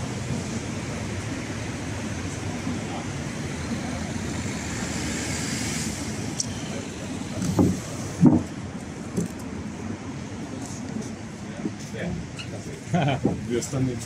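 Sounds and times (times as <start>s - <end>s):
street traffic noise: 0.0s - 14.0s.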